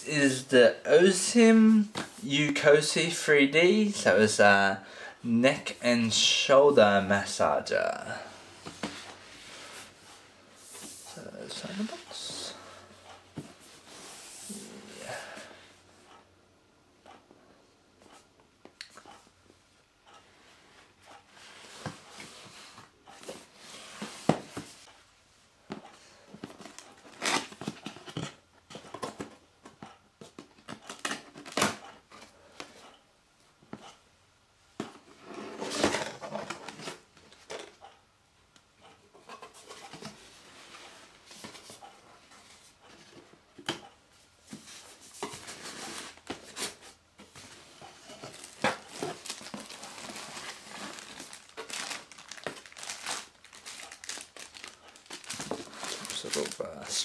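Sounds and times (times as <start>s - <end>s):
cardboard scraping and rustling: 44.6s - 56.9s.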